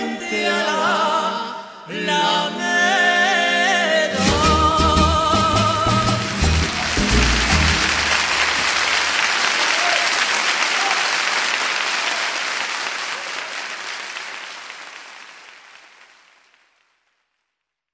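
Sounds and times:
low accompaniment notes: 0:04.3 - 0:08.7
audience applauding: 0:05.5 - 0:17.2.

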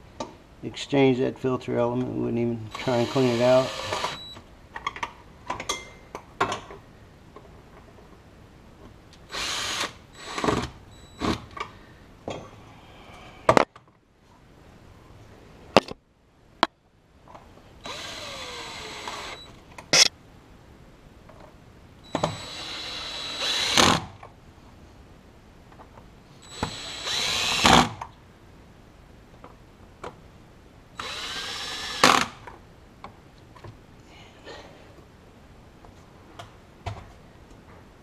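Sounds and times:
cordless drill driving screws: 0:02.7 - 0:04.3, 0:09.3 - 0:10.7, 0:17.8 - 0:19.5, 0:22.1 - 0:24.0, 0:26.4 - 0:28.0, 0:31.0 - 0:32.4.

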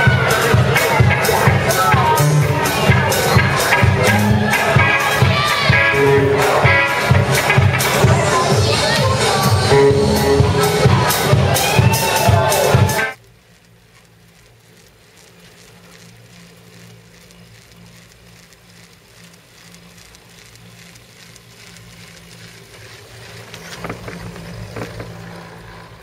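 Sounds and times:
loud dance music: 0:00.0 - 0:13.2
chairlift clacking and rattling: 0:00.0 - 0:26.0
chairlift humming: 0:00.0 - 0:26.0.

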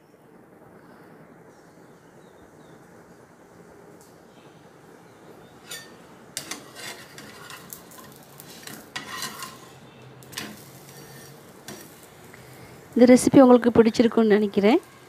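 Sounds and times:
faint sizzle: 0:00.0 - 0:15.0
spatula scraping a frying pan: 0:05.6 - 0:12.9.

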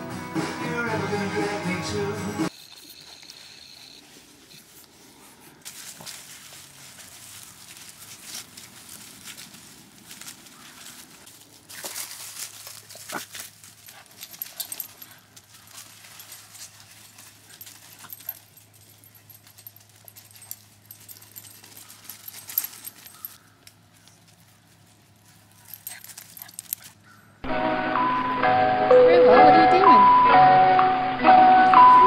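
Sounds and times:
puppy noises: 0:02.5 - 0:05.6, 0:08.1 - 0:27.4
paws rustling in leaves: 0:02.7 - 0:27.4.

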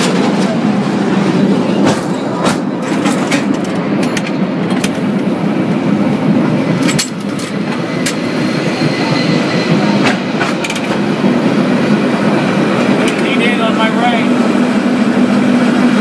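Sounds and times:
cable car rattling rumble: 0:00.0 - 0:16.0
sharp clicks and clanks: 0:01.8 - 0:05.0, 0:06.8 - 0:08.2, 0:10.0 - 0:11.0, 0:13.0 - 0:13.4.

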